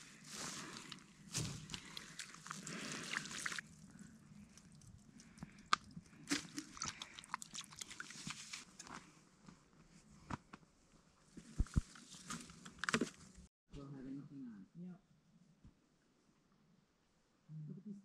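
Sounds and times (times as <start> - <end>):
water splashing into a basin: 1.7 - 3.6.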